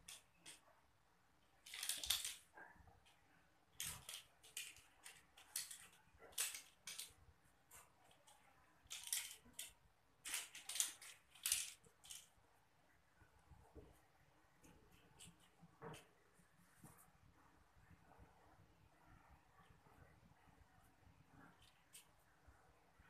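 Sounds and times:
kittens' claws skittering on tiles: 0:01.4 - 0:12.4.

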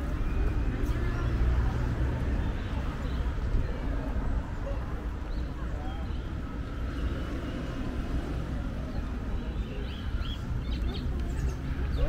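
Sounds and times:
low traffic rumble: 0:00.0 - 0:12.0
small birds chirping: 0:08.8 - 0:12.0.

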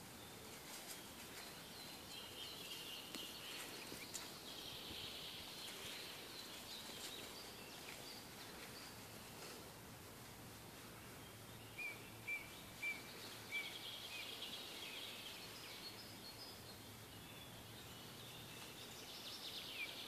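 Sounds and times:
outdoor background hiss: 0:00.0 - 0:20.0
songbird chirping: 0:00.0 - 0:20.0.

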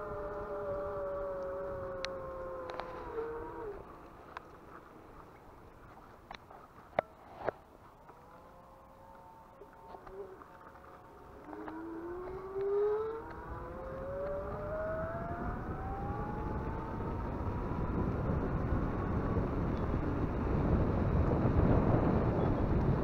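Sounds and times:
electric bike motor whining: 0:00.0 - 0:03.9, 0:08.2 - 0:23.0
wind noise: 0:09.6 - 0:23.0.

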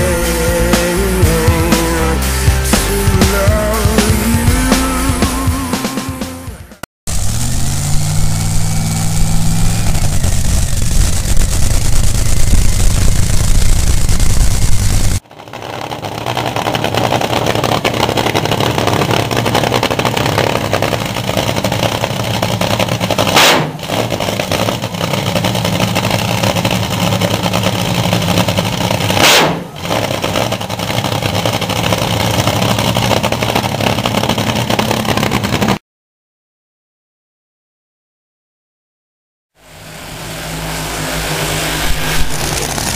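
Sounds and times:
drag racing engine running: 0:00.0 - 0:35.8, 0:39.6 - 0:42.9
engine throttle blips: 0:00.0 - 0:35.8, 0:39.6 - 0:42.9.

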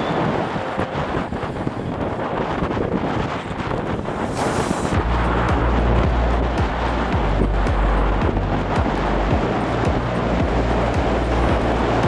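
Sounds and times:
held bass: 0:00.0 - 0:12.0
deep kick drum beat: 0:05.0 - 0:12.0.

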